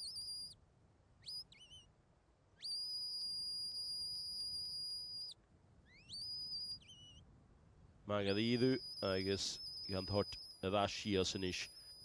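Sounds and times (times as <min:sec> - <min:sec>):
shepherd's whistle: 0:00.0 - 0:00.6, 0:01.2 - 0:01.9, 0:02.6 - 0:07.2.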